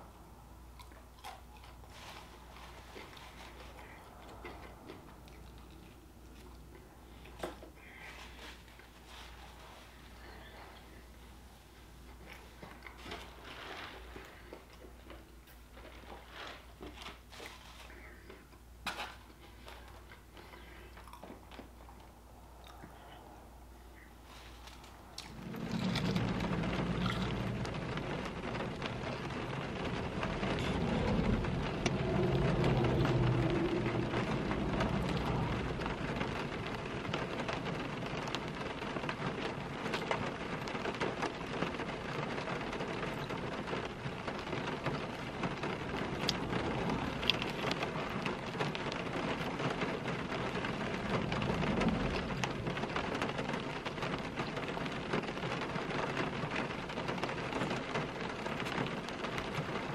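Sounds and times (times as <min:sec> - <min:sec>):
rain on car roof and windows: 0:00.0 - 0:22.6, 0:24.2 - 0:59.9
low rumble: 0:22.0 - 0:39.0, 0:44.1 - 0:54.0.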